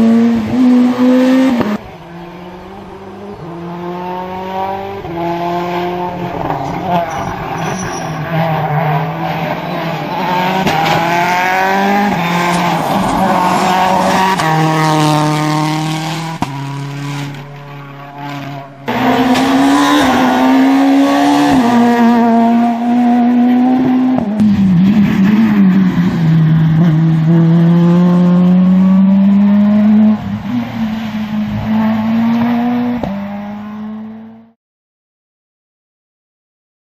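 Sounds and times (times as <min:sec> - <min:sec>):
rally car engines revving: 0:00.0 - 0:34.6.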